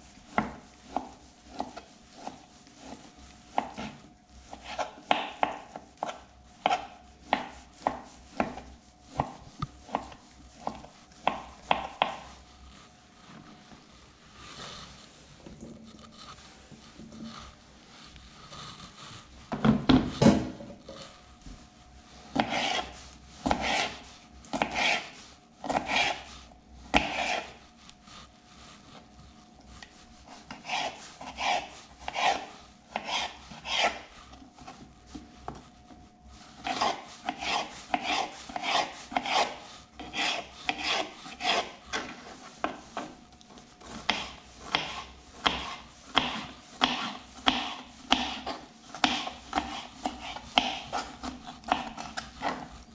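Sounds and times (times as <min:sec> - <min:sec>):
knife cutting on plastic board: 0:00.2 - 0:12.8, 0:22.3 - 0:26.3, 0:26.9 - 0:27.6, 0:29.8 - 0:35.7, 0:36.6 - 0:43.2, 0:43.8 - 0:52.9.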